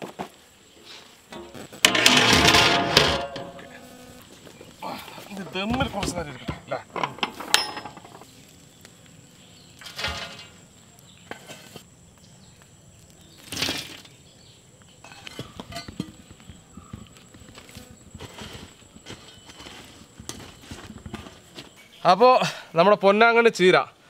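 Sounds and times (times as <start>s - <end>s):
metal shovel scraping: 0.0s - 4.0s, 9.8s - 10.6s, 11.3s - 11.8s, 18.2s - 21.9s
charcoal clinking and clattering: 1.3s - 3.6s, 9.8s - 10.7s.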